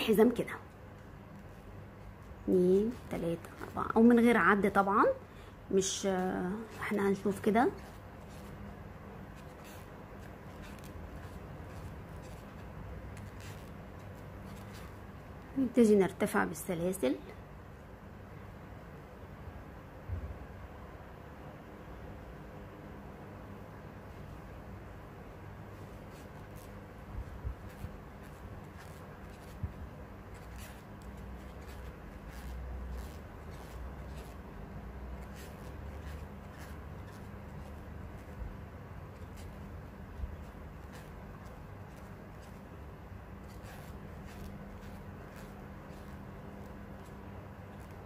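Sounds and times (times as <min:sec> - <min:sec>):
low steady hum: 0:00.0 - 0:48.0
yarn rustling: 0:05.8 - 0:15.6, 0:25.7 - 0:48.0
crochet hook ticking: 0:30.4 - 0:34.4, 0:43.4 - 0:47.2.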